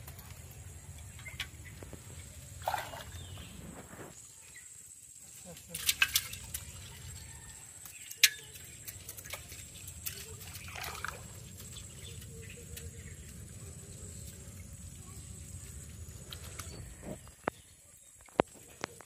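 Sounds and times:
water trickling and dripping: 4.2s - 19.0s.

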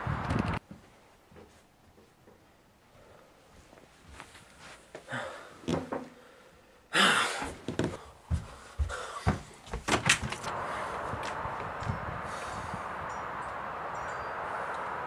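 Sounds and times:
hiss of outdoor air: 0.0s - 0.6s, 10.5s - 15.0s
footsteps: 0.6s - 2.4s, 7.4s - 12.9s
front door thumps and clicks: 9.8s - 10.5s.

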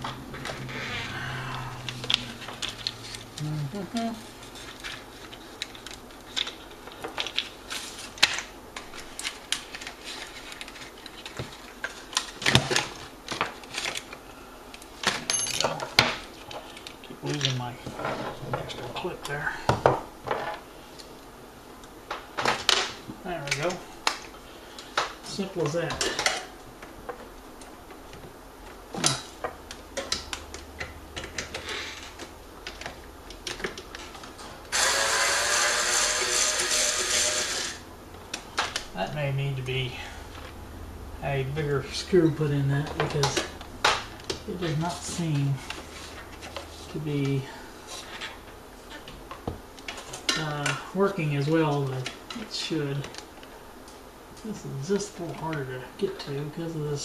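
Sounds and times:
loud steady sound: 34.7s - 38.0s.

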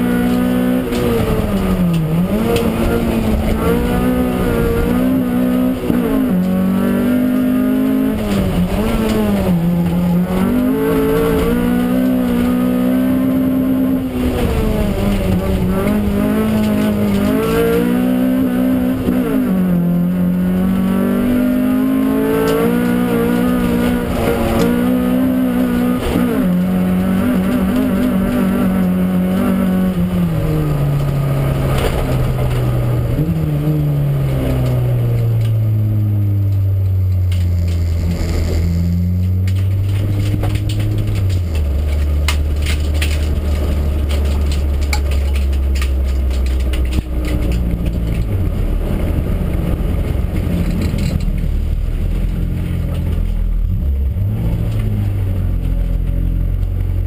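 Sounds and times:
race car engine revving: 0.0s - 57.0s
interior rattles and clicks: 8.0s - 12.9s, 13.9s - 18.0s, 22.4s - 33.6s, 36.4s - 57.0s.

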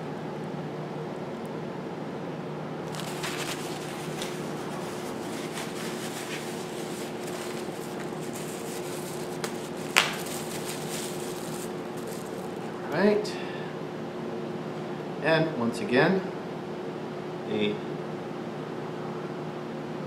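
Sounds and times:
steady low hum: 0.0s - 19.3s
paper towel wrapping crinkling: 2.9s - 12.8s.

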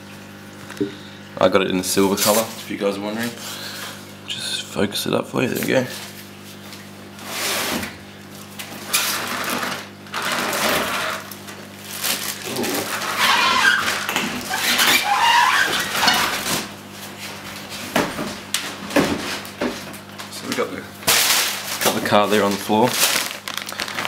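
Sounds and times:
plastic wrap crinkling: 10.4s - 16.7s, 19.4s - 24.0s
cardboard scraping: 11.9s - 17.9s.

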